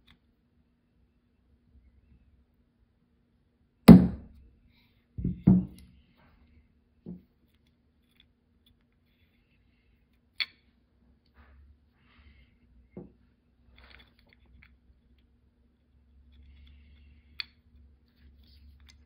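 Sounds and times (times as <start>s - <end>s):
hammer striking pin punch: 3.9s - 4.3s.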